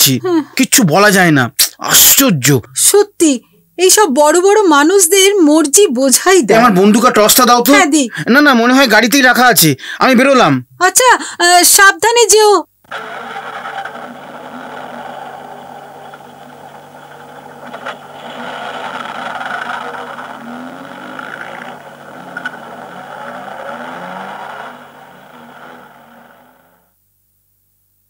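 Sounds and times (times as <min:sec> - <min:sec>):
car engine pulling away: 0:12.9 - 0:26.8.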